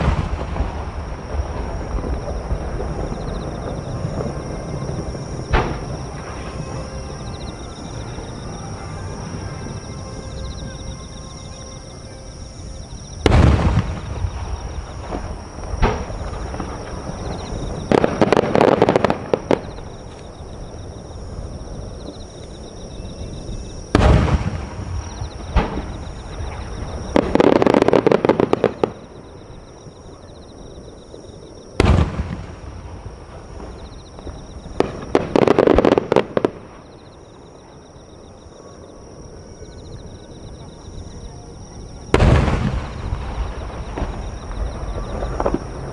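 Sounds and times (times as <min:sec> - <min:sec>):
firework crackling: 0:00.0 - 0:09.8, 0:12.9 - 0:22.6, 0:23.8 - 0:29.3, 0:31.8 - 0:36.9, 0:42.1 - 0:45.9
firework deep booms: 0:00.0 - 0:10.7, 0:12.4 - 0:38.0, 0:41.8 - 0:45.9.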